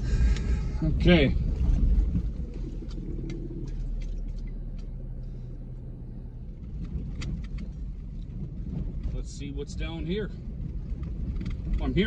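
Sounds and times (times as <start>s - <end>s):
engine and road rumble: 0.0s - 12.0s
small clicks and knocks: 10.9s - 11.9s.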